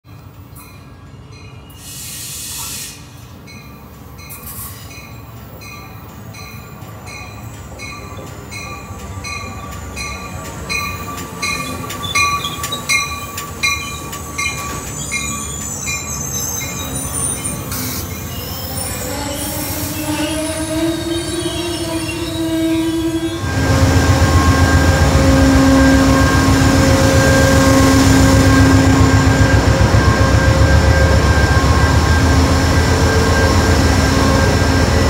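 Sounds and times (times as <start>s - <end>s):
train bell ringing: 0.1s - 1.9s, 3.4s - 19.2s, 21.3s - 35.0s
train rumble: 0.1s - 35.0s
wheel squeal: 11.0s - 35.0s.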